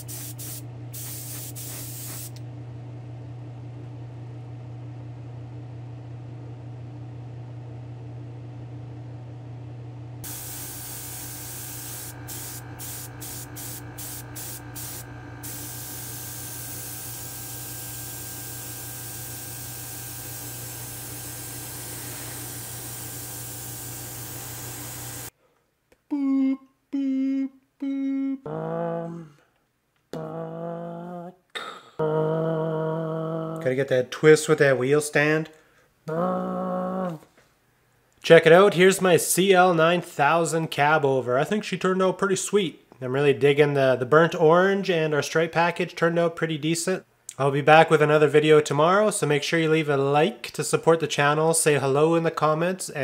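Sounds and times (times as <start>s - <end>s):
airbrush spray hiss: 0.0s - 2.4s, 10.2s - 25.3s
steady low hum: 0.0s - 25.3s.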